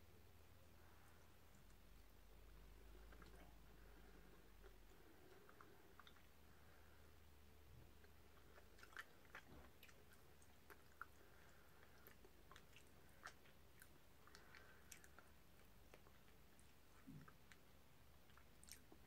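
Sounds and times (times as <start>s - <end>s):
low room hum: 0.0s - 19.0s
wet mouth clicks chewing: 4.2s - 6.4s, 8.0s - 19.0s.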